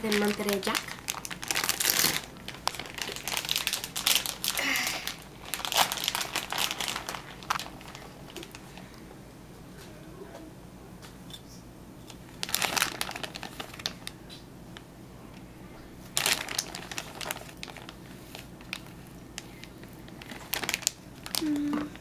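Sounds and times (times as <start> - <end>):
plastic bag crinkling: 0.0 - 9.0, 12.3 - 14.3, 16.0 - 22.0.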